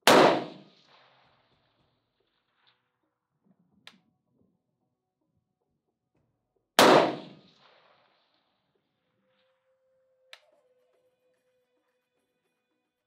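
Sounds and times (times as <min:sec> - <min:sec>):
rifle shot with echo: 0:00.0 - 0:01.3, 0:06.8 - 0:08.2.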